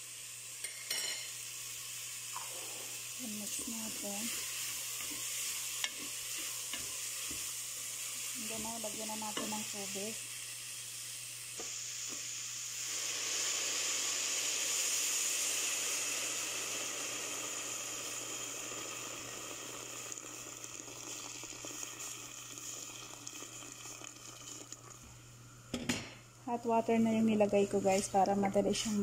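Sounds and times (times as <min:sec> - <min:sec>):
vegetables sizzling in a pot: 0:00.0 - 0:29.0.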